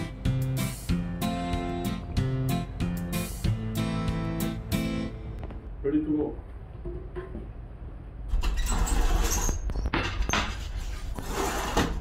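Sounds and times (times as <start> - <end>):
steady low rumble: 4.6 - 8.3
pizza scraping off wooden peel: 10.7 - 12.0.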